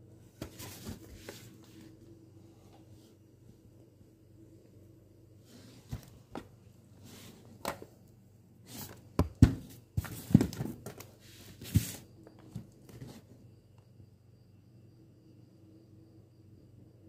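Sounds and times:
cardboard scraping and rustling: 0:00.4 - 0:01.8, 0:08.7 - 0:13.4
cardboard box knocks and clicks: 0:09.2 - 0:11.1.

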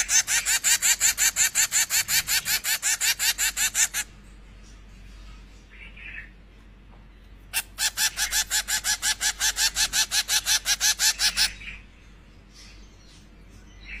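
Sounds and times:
finch chick begging calls: 0:00.0 - 0:04.1, 0:07.6 - 0:11.7.

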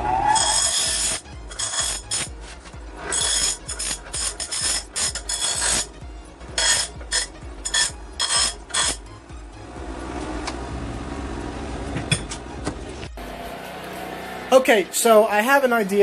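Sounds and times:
grinder grinding steel tube: 0:00.0 - 0:09.2.

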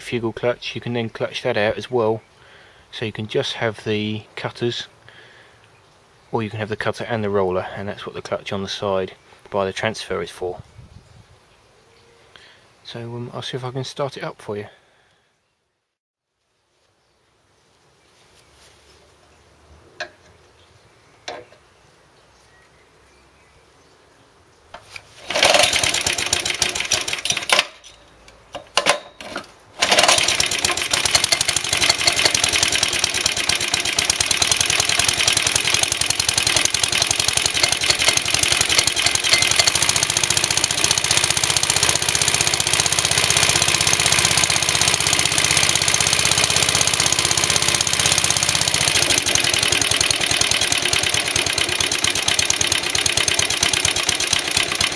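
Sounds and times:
small engine starting and running: 0:25.0 - 0:27.8, 0:28.8 - 0:54.9.

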